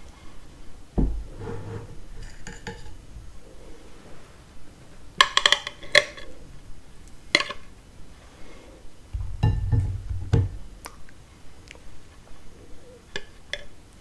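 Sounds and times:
dull knock on plate: 0:09.2 - 0:10.6.

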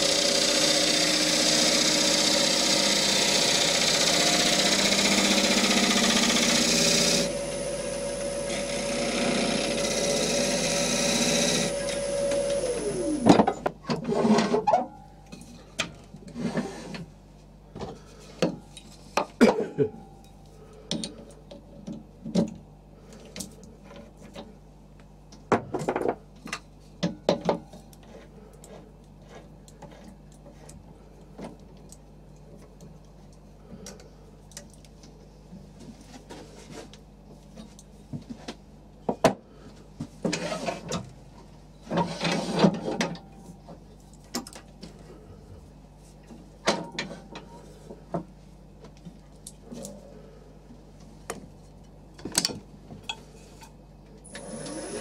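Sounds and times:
gouge cutting spinning wood: 0:00.0 - 0:13.3.

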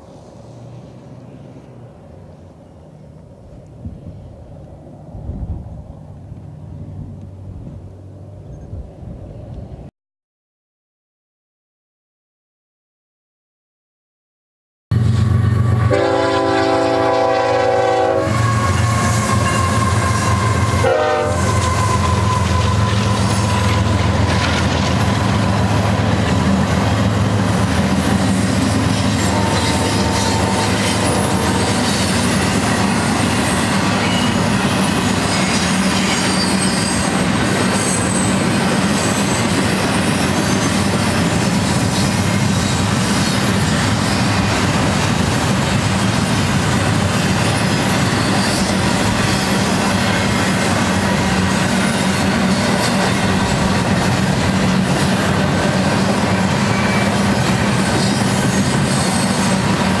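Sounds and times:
diesel locomotive engine hum: 0:00.0 - 0:09.9, 0:14.9 - 1:00.0
freight cars rumbling: 0:14.9 - 1:00.0
wheels clacking on rail: 0:15.0 - 1:00.0.

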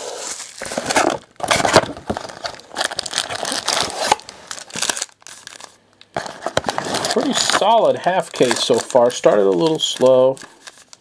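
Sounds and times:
plastic wrapping crinkling and tearing: 0:00.1 - 0:11.0.

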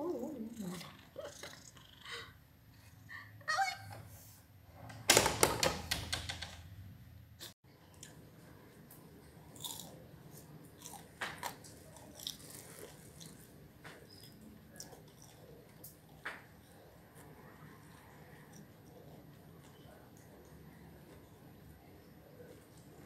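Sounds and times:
cat crunching dry food: 0:09.4 - 0:13.6.

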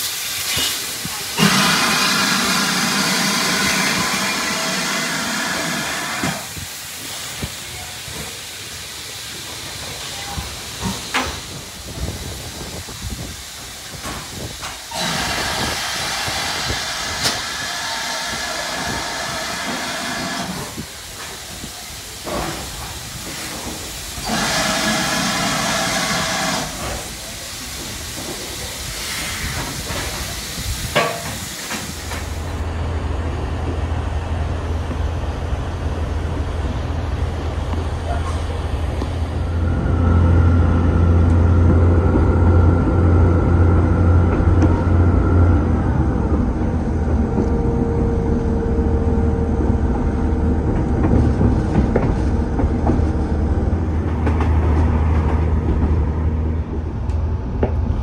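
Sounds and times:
steam locomotive hissing: 0:00.0 - 0:32.9
low hum inside moving train: 0:00.0 - 0:58.0.

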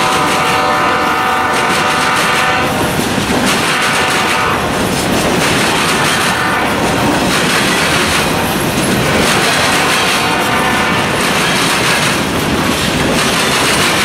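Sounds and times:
freight train rolling past: 0:00.0 - 0:14.0
wheels clacking over rail joints: 0:00.0 - 0:14.0.

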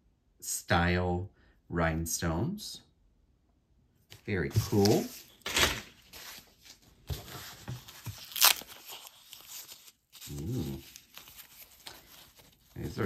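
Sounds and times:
plastic bag crinkling and tearing: 0:07.8 - 0:13.0.

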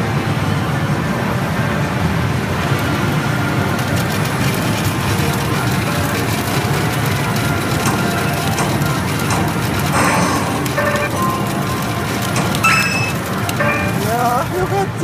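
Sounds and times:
din of gaming machines: 0:00.0 - 0:15.0
fine rapid clicking: 0:03.5 - 0:15.0.

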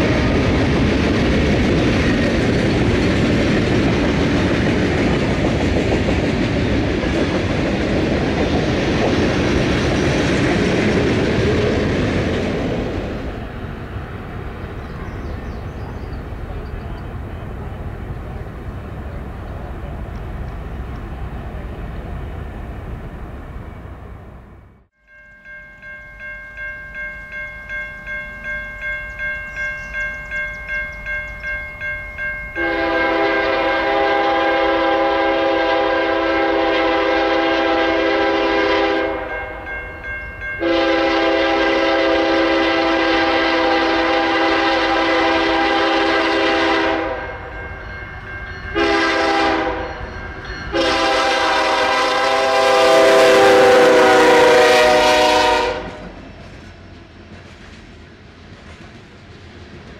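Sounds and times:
freight train rumbling: 0:00.0 - 0:59.9
crossing bell ringing: 0:25.0 - 0:35.2, 0:36.4 - 0:43.7, 0:45.3 - 0:52.1
locomotive air horn blasts: 0:32.6 - 0:39.5, 0:40.6 - 0:47.5, 0:48.7 - 0:49.9, 0:50.7 - 0:56.1.

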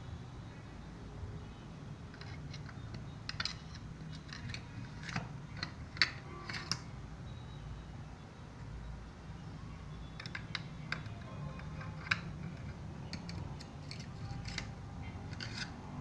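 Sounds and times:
knives clicking against wooden block: 0:02.1 - 0:06.9, 0:10.2 - 0:15.9.

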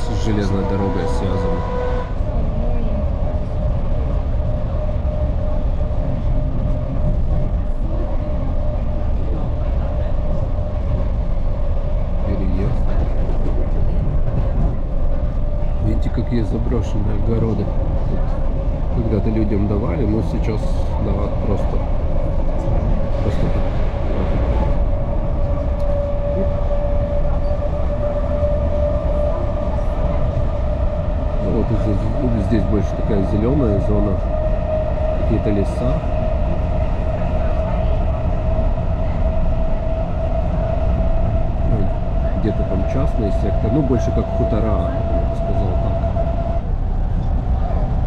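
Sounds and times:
train carriage rumble on rails: 0:00.0 - 0:48.0.

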